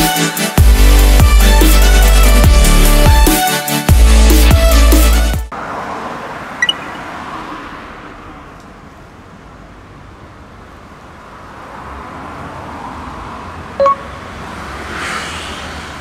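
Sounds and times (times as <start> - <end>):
road traffic: 0.0 - 16.0
car driving past: 5.5 - 8.7, 11.5 - 16.0
high beeps: 6.6 - 6.9, 13.8 - 14.2.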